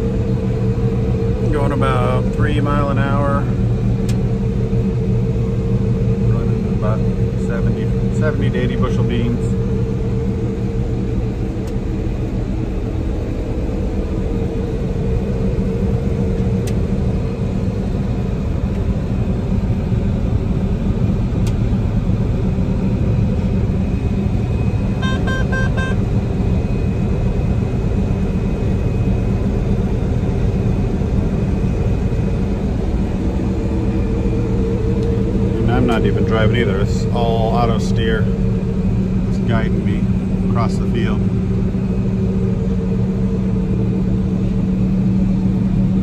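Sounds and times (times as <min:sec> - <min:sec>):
combine engine drone: 0:00.0 - 0:46.0
electronic beeps: 0:25.0 - 0:26.0.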